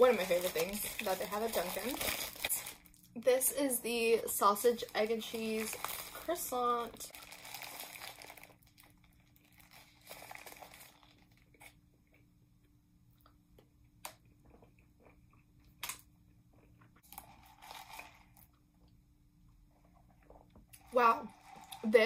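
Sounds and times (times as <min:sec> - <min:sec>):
paper wrapper crinkling: 0:00.0 - 0:03.1, 0:04.5 - 0:11.7
soft chewing: 0:08.7 - 0:21.8.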